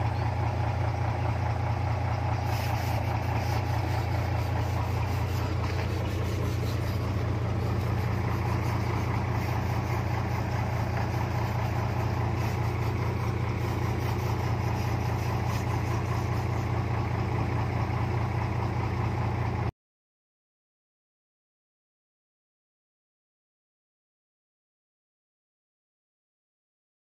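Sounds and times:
diesel engine idling: 0.0s - 19.7s.

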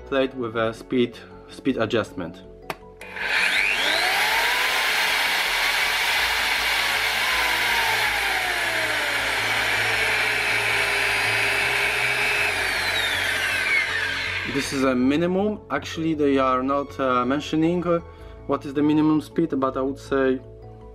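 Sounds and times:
mixer motor whining: 3.0s - 14.8s.

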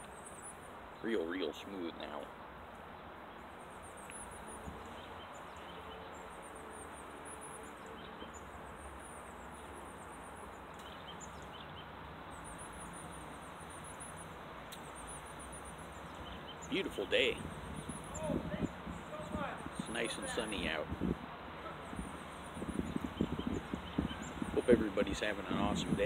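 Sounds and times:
low background noise: 0.0s - 26.0s
high-pitched bird chirps: 14.9s - 20.8s, 21.8s - 26.0s.

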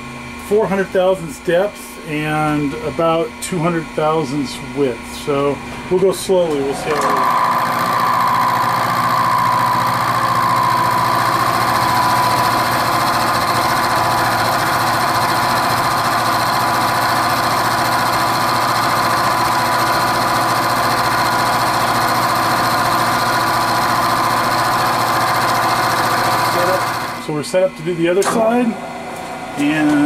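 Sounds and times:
milling machine cutting steel: 6.5s - 27.3s.

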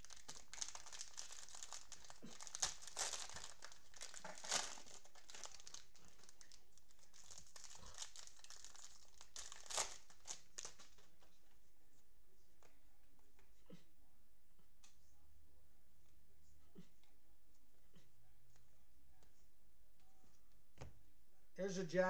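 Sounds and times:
cellophane wrapper crinkling: 0.0s - 11.2s.

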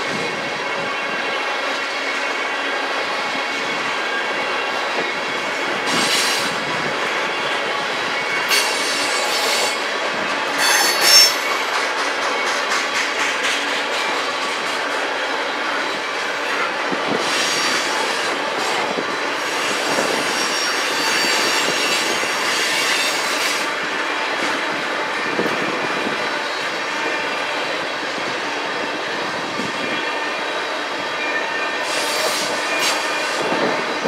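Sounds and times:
train wheels rumbling on rails: 0.0s - 34.0s
high-pitched wheel squeal: 10.6s - 11.5s, 19.5s - 23.6s.

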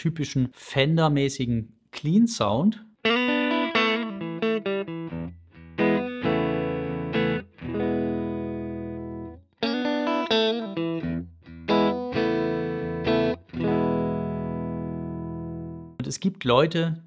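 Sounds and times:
clean electric guitar chords: 3.0s - 16.0s.

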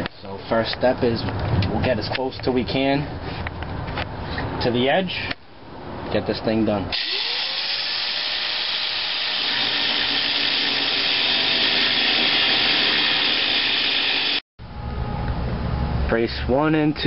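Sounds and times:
angle grinder cutting steel: 7.0s - 14.4s.

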